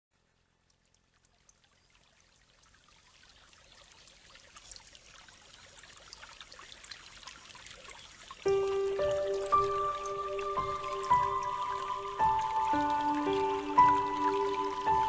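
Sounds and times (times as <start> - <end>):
babbling water with drips: 0.2 - 15.0.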